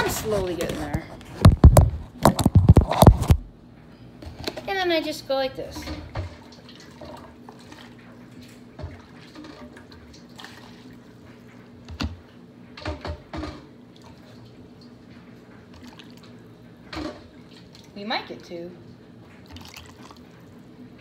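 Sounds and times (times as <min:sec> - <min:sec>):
liquid dripping and pouring: 0:05.8 - 0:12.1, 0:13.4 - 0:17.9, 0:19.2 - 0:20.7.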